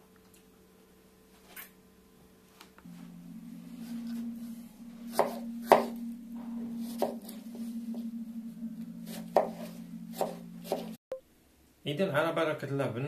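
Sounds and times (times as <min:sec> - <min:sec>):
steady low hum: 0:02.9 - 0:11.0.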